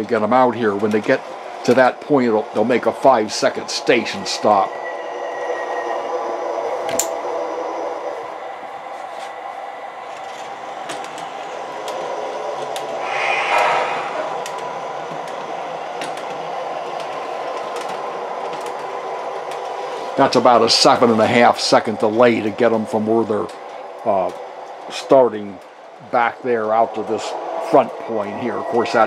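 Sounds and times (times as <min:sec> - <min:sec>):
sharp clicks on track: 0:00.0 - 0:04.6, 0:06.8 - 0:07.2, 0:10.1 - 0:25.7
model streetcar humming: 0:00.0 - 0:29.0
rush of noise: 0:12.8 - 0:16.2.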